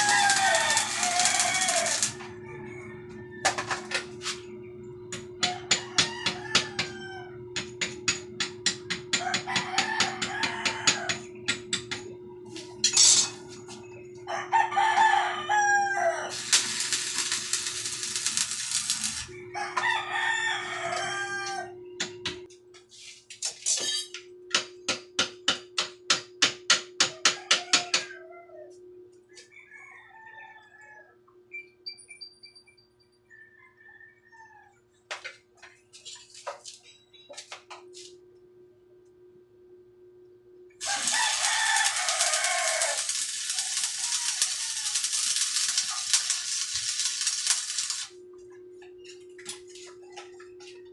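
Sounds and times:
rooster crowing: 0.0 - 4.2, 5.4 - 7.5, 9.0 - 11.4, 14.2 - 21.9, 27.0 - 31.3, 33.3 - 34.9, 40.8 - 48.2
loud burst of hiss: 40.8 - 48.1.

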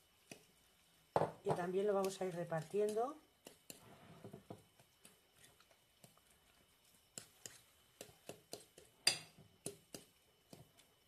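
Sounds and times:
fork clinking against glass bowl: 9.0 - 9.3.

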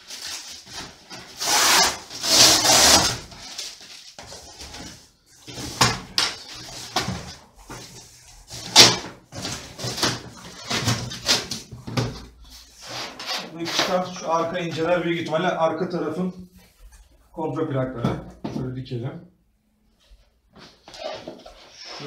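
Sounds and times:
cardboard tearing and rustling: 0.0 - 7.4, 8.5 - 12.0.

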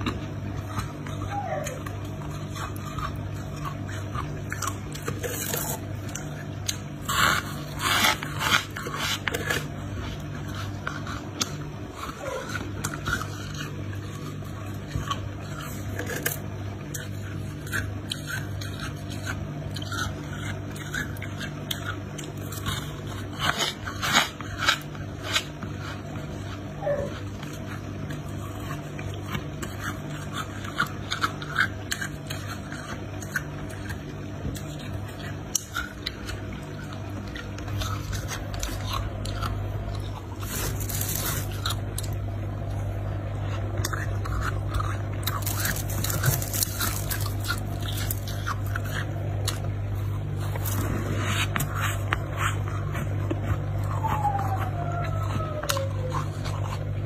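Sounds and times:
frost being chewed: 0.0 - 57.0
steady low hum: 0.0 - 57.0
frost scraping and crackling: 40.0 - 42.2, 44.5 - 53.8.

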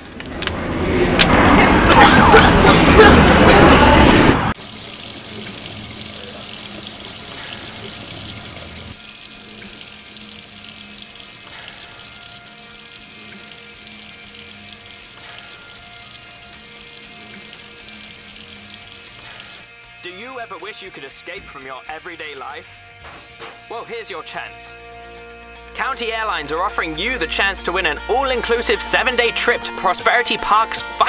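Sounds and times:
hands rinsed under water: 4.6 - 19.7.

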